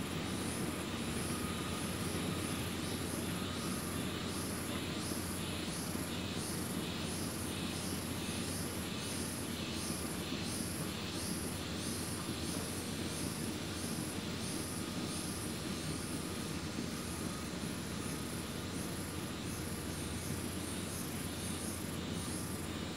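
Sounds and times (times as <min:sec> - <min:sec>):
insect chirping: 0:00.0 - 0:22.9.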